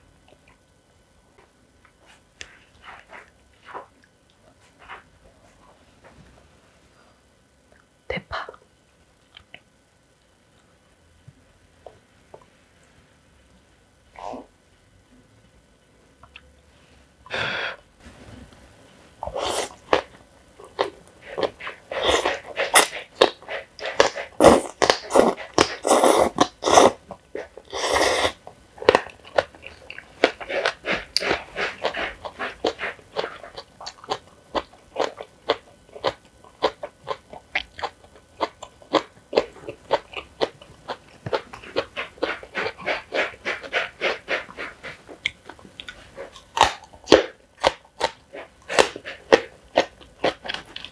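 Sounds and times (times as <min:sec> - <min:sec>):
person slurping noodles: 0:19.2 - 0:20.1, 0:21.2 - 0:28.4, 0:41.3 - 0:45.0.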